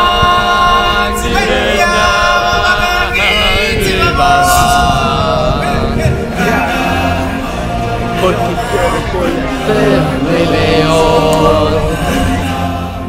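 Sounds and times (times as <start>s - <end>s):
voices singing a cappella: 0.0s - 13.0s.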